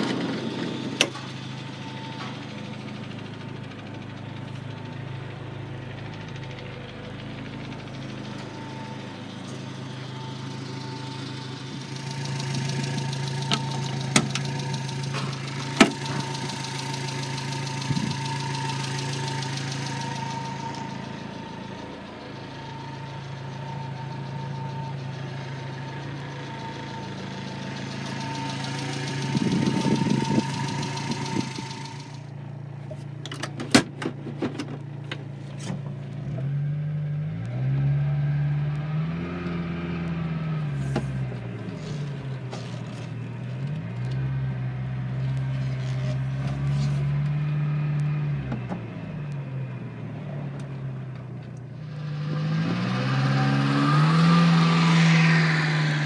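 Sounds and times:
van engine idling: 0.0s - 56.0s.

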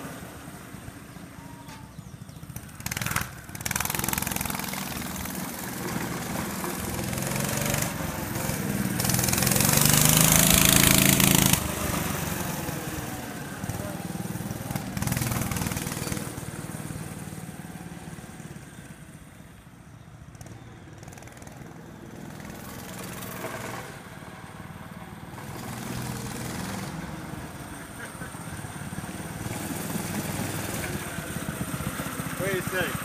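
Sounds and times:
minibike small engine running: 1.0s - 33.0s.

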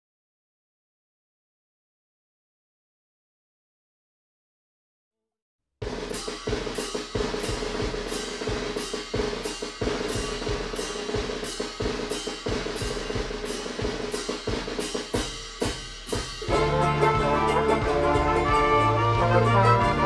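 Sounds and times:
drums playing a steady beat: 5.8s - 20.0s.

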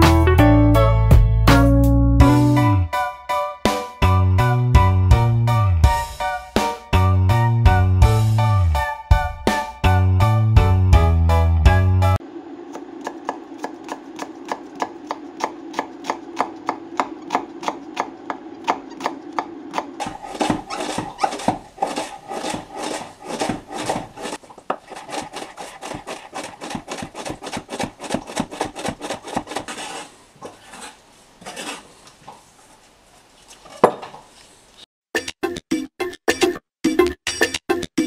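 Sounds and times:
knife chopping on wooden board: 13.0s - 30.0s.

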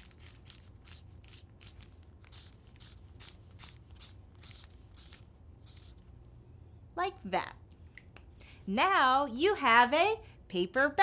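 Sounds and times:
marker scratching on paper bag: 0.0s - 6.0s.

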